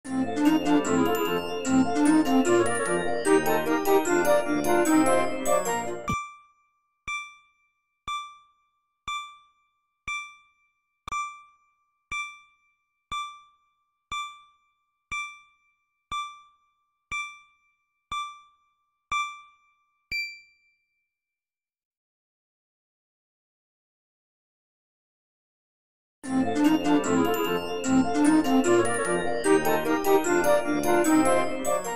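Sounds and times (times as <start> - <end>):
music jingle: 0.1 - 6.2, 26.3 - 31.9
countdown timer dings: 0.1 - 6.4, 7.1 - 7.5, 8.1 - 9.5, 10.1 - 10.5, 12.1 - 12.5, 13.1 - 14.5, 15.1 - 20.6, 26.3 - 31.9.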